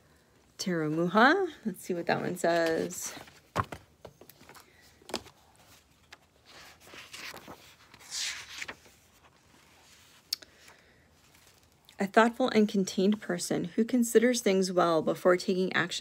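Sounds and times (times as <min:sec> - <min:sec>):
paper pages rustling: 0:02.2 - 0:11.9.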